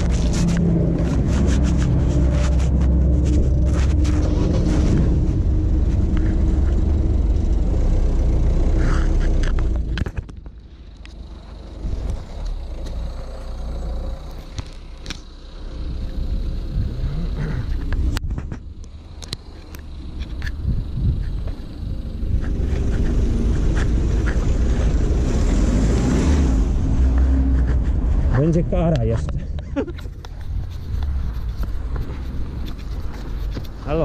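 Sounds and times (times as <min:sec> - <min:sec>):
street background: 0:00.0 - 0:34.0
van engine rumbling: 0:00.0 - 0:34.0
sharp clicks and knocks: 0:09.0 - 0:13.0.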